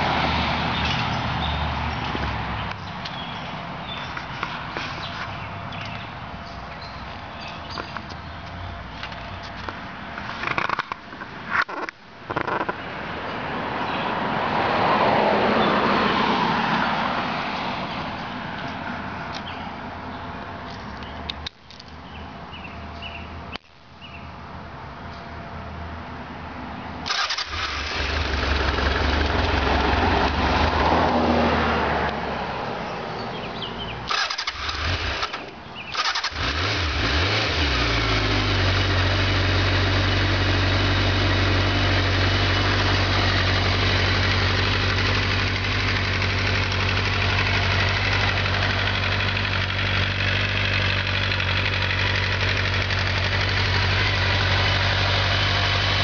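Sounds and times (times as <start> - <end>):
motorcycle engine cranking: 27.1 - 29.6, 34.1 - 38.4
motorcycle engine idling: 34.1 - 56.0.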